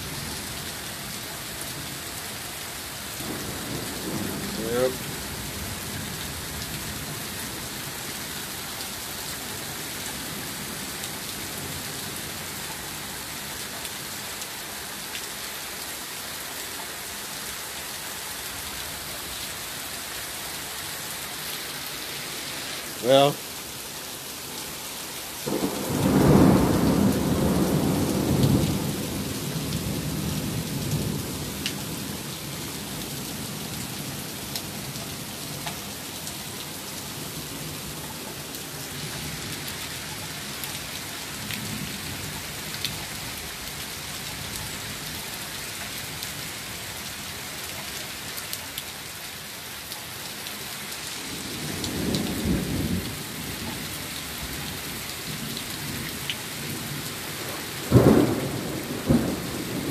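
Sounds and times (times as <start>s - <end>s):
pouring rain: 0.0s - 59.9s
thunder rumbling: 3.2s - 5.8s, 25.4s - 32.1s, 56.6s - 59.9s.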